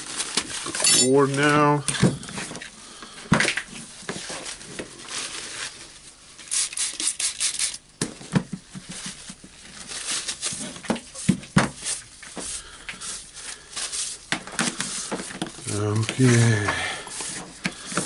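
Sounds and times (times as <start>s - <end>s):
paper towel rubbing and crinkling: 0.0s - 1.8s, 3.8s - 7.2s, 8.8s - 18.0s.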